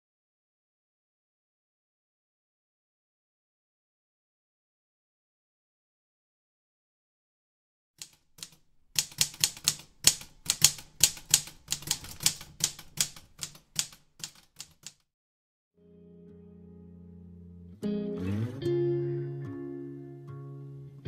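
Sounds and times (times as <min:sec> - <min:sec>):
typewriter keys clacking: 0:08.0 - 0:15.0
low steady chord: 0:15.8 - 0:21.0.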